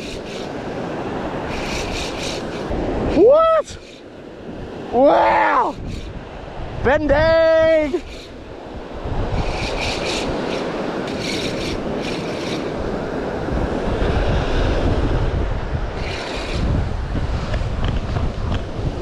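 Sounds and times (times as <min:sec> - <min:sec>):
surf: 0:00.0 - 0:19.0
wind buffeting microphone: 0:00.0 - 0:19.0
fishing reel winding: 0:01.5 - 0:02.7, 0:05.6 - 0:06.1, 0:07.9 - 0:08.4, 0:09.4 - 0:12.7, 0:16.0 - 0:16.7.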